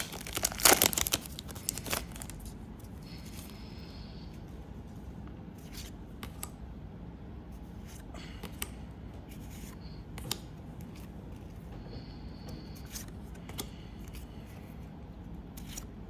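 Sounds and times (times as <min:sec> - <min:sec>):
low room noise: 0:00.0 - 0:16.0
cards sliding and clicking: 0:15.5 - 0:16.0.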